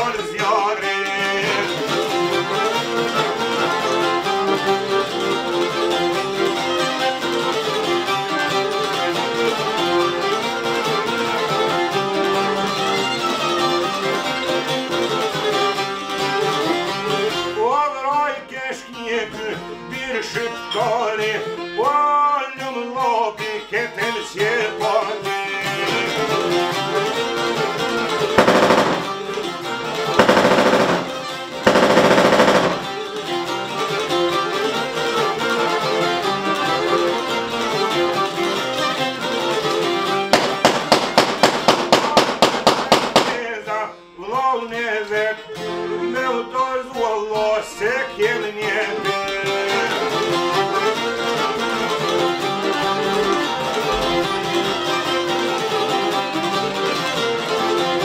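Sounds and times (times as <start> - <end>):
bowed violin melody: 0.0 - 42.3, 44.9 - 58.0
plucked strumming: 0.0 - 43.8, 45.3 - 58.0
rough noise bursts: 28.4 - 29.3, 30.2 - 33.0.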